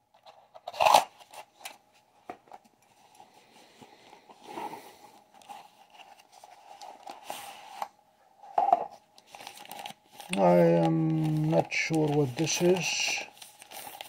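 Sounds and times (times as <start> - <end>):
faint steady hum: 0.0 - 14.0
plastic wrapping rustling: 8.6 - 14.0.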